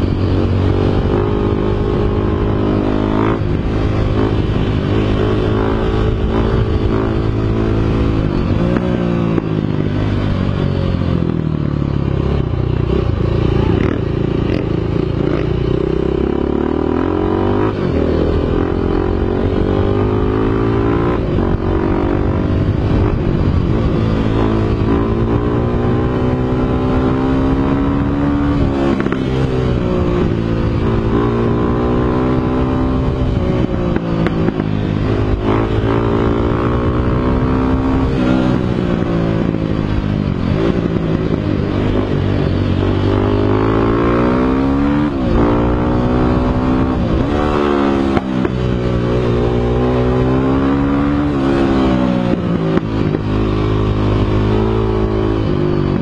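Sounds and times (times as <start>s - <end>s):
dirt bike engine revving: 0.0s - 10.6s, 12.2s - 56.0s.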